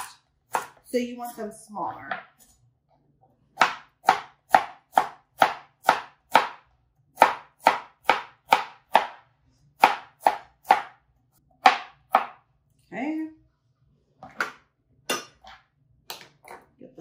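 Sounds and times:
knife chopping carrots: 0:00.0 - 0:01.4, 0:03.5 - 0:12.4.

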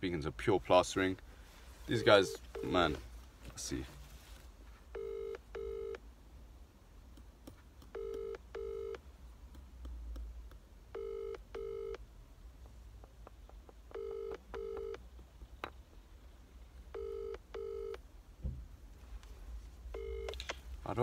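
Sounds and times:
phone ringback tone beeps: 0:02.0 - 0:03.0, 0:05.0 - 0:06.0, 0:08.0 - 0:09.0, 0:10.9 - 0:12.0, 0:13.9 - 0:15.0, 0:16.9 - 0:18.0, 0:20.0 - 0:20.4.

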